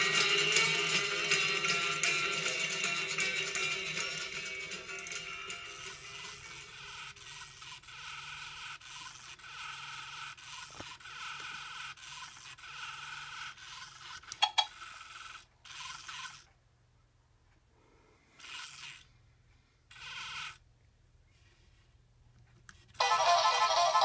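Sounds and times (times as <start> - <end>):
toy gear motor whirring: 4.0 - 16.6, 18.3 - 19.2, 19.8 - 20.7, 23.0 - 24.0.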